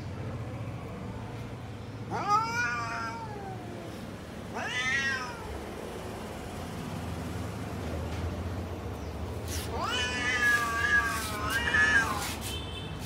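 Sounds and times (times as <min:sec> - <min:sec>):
cat meowing: 0:02.1 - 0:05.6, 0:09.5 - 0:12.4.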